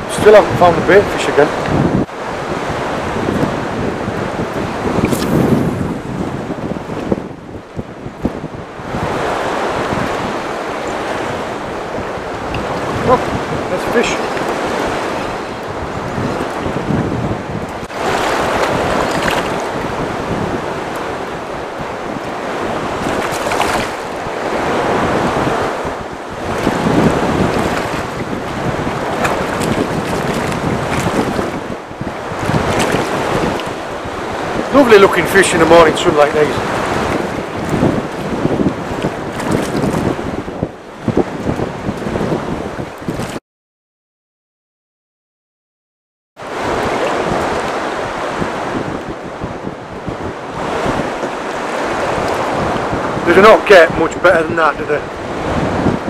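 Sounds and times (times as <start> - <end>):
waves lapping: 0.0 - 7.2, 8.4 - 43.4, 46.4 - 56.0
wind blowing across microphone: 0.0 - 43.4, 46.4 - 56.0
sea water sloshing: 9.0 - 40.4, 46.4 - 48.9.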